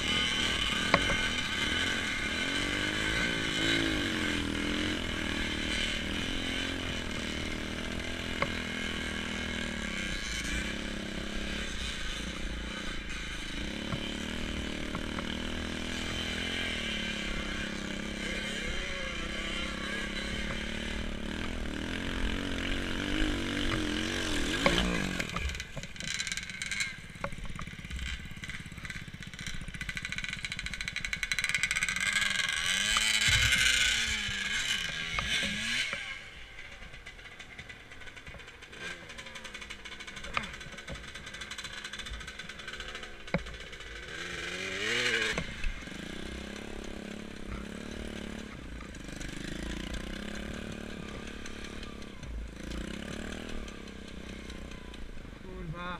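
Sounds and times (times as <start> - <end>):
dirt bike engine revving: 0.0 - 55.9.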